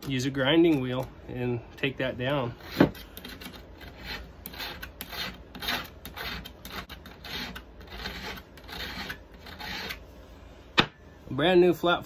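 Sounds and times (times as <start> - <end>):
file rasping on metal: 2.5 - 10.0.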